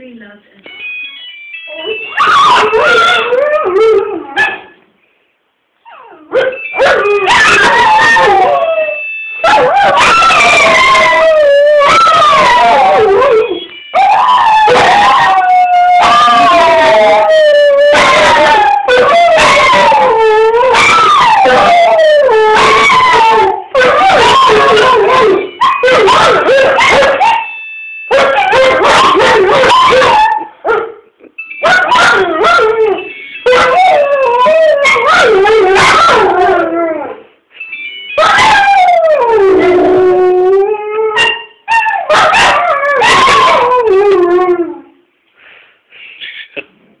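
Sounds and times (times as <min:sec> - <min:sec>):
phone ringtone: 0:00.7 - 0:03.3, 0:06.4 - 0:10.8, 0:12.6 - 0:15.1, 0:24.5 - 0:29.9, 0:31.4 - 0:34.0, 0:37.5 - 0:39.0
dog yipping: 0:02.1 - 0:03.3, 0:04.3 - 0:04.8, 0:05.8 - 0:08.3, 0:23.8 - 0:27.5, 0:28.1 - 0:30.9, 0:31.6 - 0:32.8, 0:34.8 - 0:36.3, 0:41.1 - 0:43.6
dogs howling: 0:02.2 - 0:04.6, 0:05.9 - 0:27.4, 0:28.1 - 0:30.5, 0:31.7 - 0:37.2, 0:38.2 - 0:44.9.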